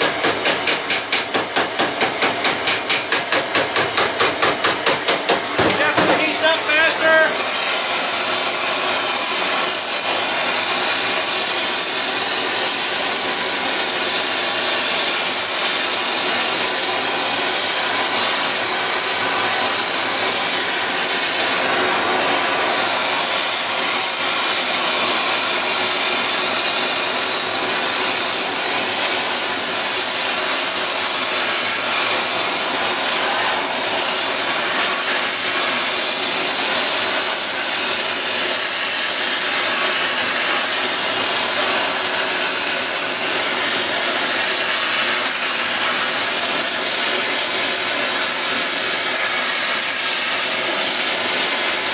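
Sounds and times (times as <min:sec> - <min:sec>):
torch flame hissing: 0:00.0 - 0:14.2, 0:27.4 - 0:47.4.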